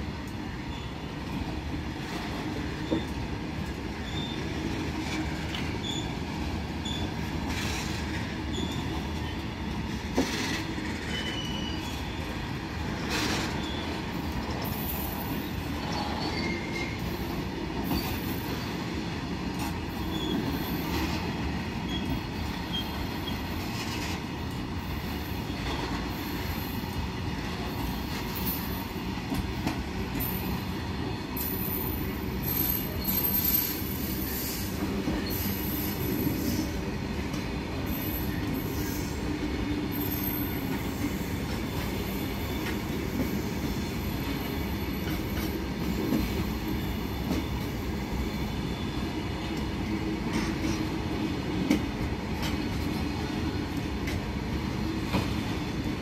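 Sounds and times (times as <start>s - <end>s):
train wagons rolling: 0.0s - 56.0s
wheel squeals: 4.0s - 4.8s, 5.5s - 6.2s, 6.8s - 9.5s, 10.2s - 12.4s, 13.0s - 14.0s, 14.6s - 17.2s, 19.9s - 24.2s.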